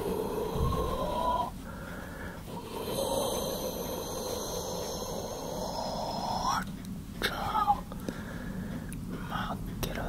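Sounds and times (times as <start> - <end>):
man breathing into microphone: 0.0 - 5.9.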